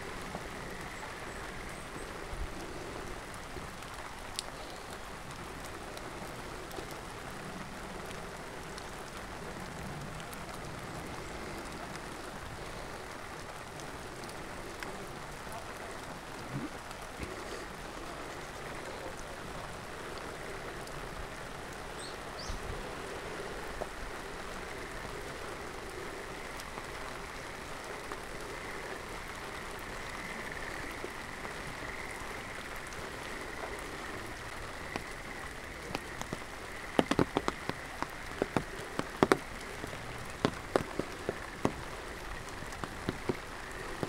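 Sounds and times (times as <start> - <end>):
large raindrops tapping: 0.0 - 44.0
steady rain falling: 0.0 - 44.0.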